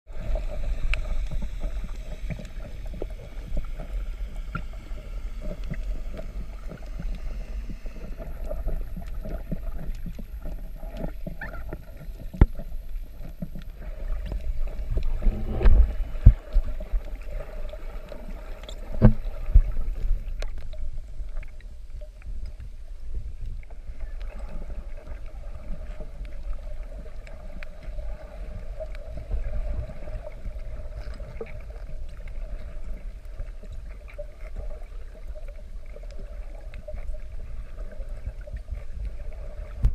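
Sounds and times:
low rumble of moving water: 0:00.0 - 0:39.9
sharp clicks underwater: 0:00.2 - 0:22.7, 0:39.6 - 0:39.9.

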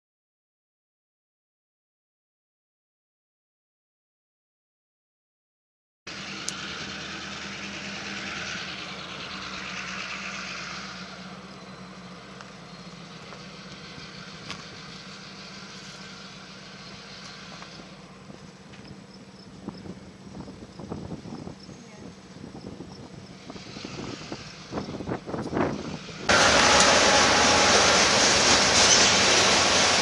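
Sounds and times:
low engine hum: 0:06.1 - 0:30.0
rushing hiss: 0:25.6 - 0:30.0.

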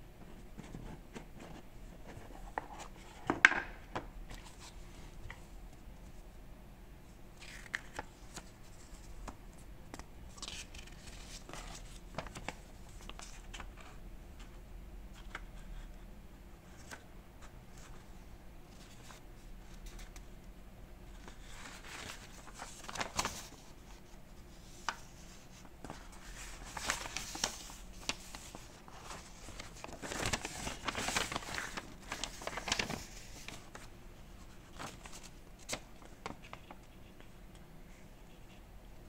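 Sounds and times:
paper leaflet rustling: 0:07.4 - 0:14.0, 0:21.1 - 0:38.0.

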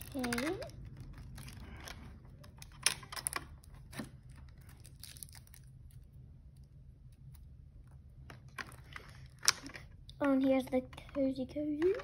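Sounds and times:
plastic packaging crinkling: 0:00.0 - 0:06.0.

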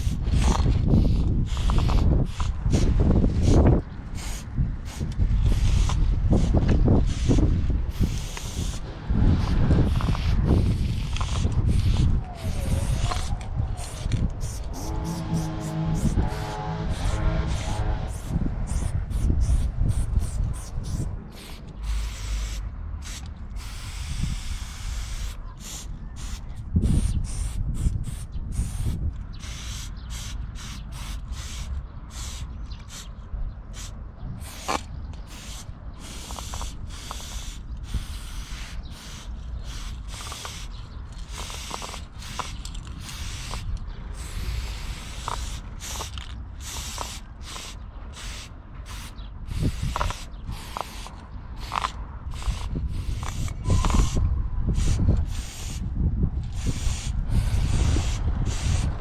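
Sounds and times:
low rumble: 0:00.0 - 0:21.8
aerosol spray can spraying: 0:09.4 - 0:33.1, 0:33.8 - 0:40.7, 0:41.3 - 0:43.6, 0:44.2 - 0:54.2, 0:54.8 - 0:55.8, 0:56.5 - 0:59.0.

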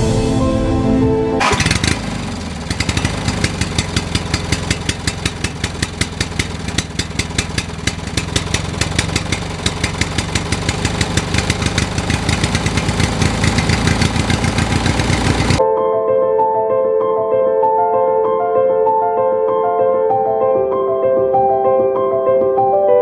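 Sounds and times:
tractor engine chugging: 0:01.4 - 0:15.6.

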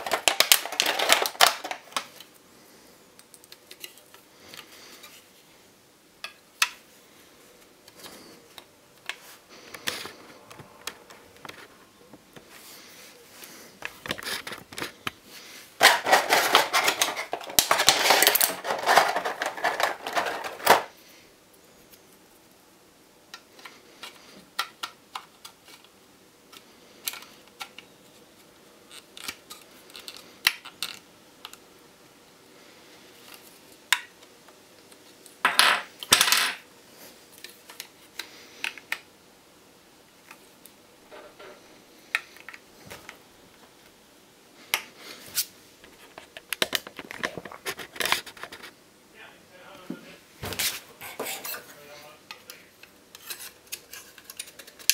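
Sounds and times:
plastic packaging crinkling: 0:00.0 - 0:02.3, 0:15.8 - 0:20.9.

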